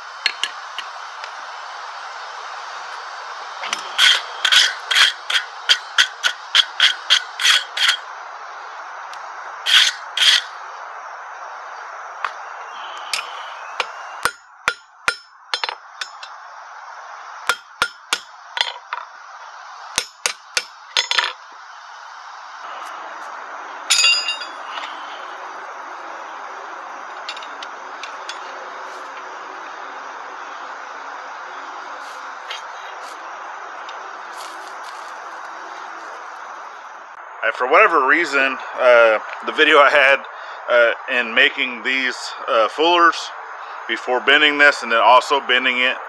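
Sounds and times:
hammer ringing on anvil: 23.9 - 24.7.

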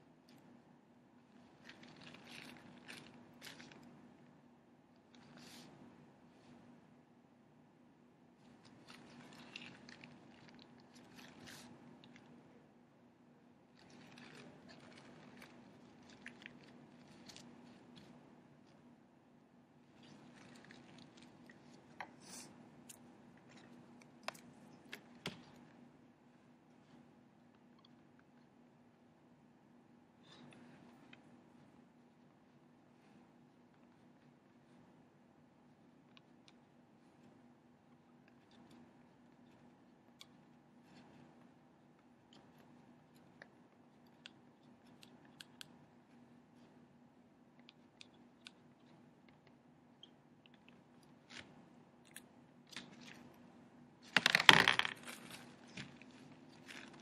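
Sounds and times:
faint room hum: 0.0 - 57.0
soft rustle: 1.2 - 4.4, 5.0 - 6.9, 8.3 - 12.6, 13.6 - 19.0, 19.7 - 27.3, 54.9 - 57.0.

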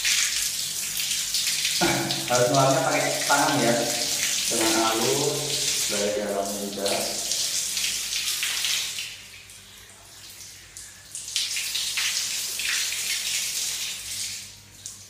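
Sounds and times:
tap water splashing on visor: 1.1 - 6.0.

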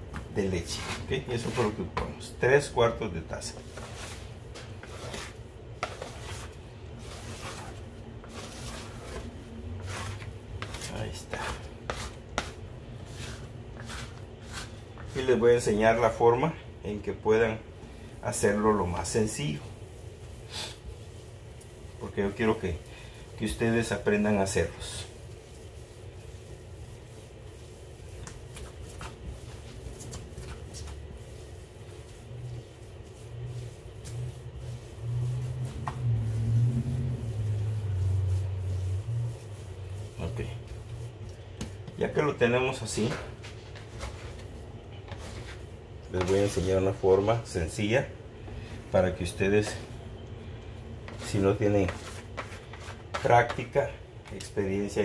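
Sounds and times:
pats and slaps on dough: 0.0 - 2.3, 27.0 - 38.1, 40.0 - 42.2
hands kneading dough: 0.0 - 55.0
steady low hum: 0.0 - 55.0.

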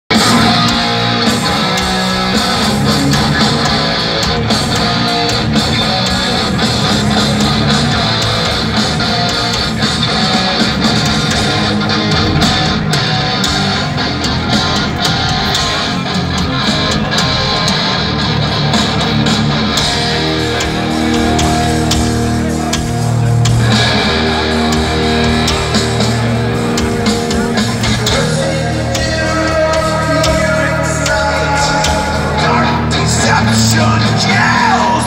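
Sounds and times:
distorted electric guitars: 0.0 - 35.0
heavy rock band playing: 0.1 - 35.0.

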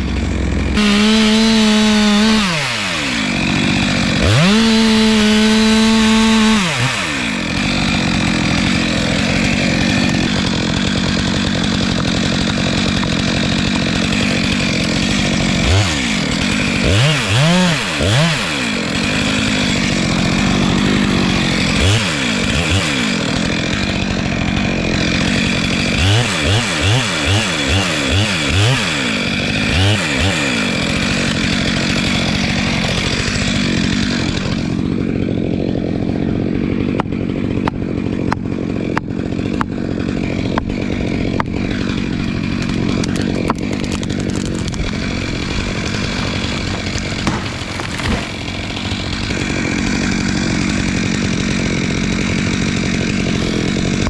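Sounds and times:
chainsaw cutting wood: 0.0 - 54.0
sharp knocks: 47.1 - 48.4.

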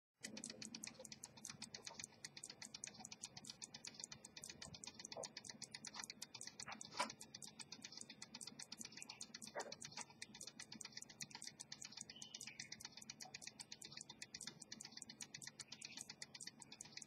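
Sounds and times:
pocket watch ticking: 0.2 - 17.0.

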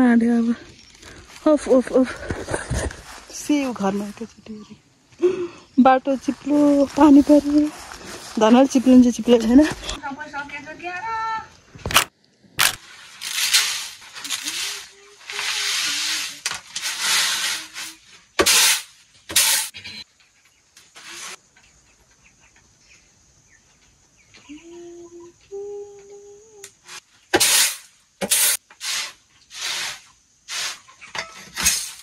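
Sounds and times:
grain swishing on bamboo tray: 12.9 - 18.8.

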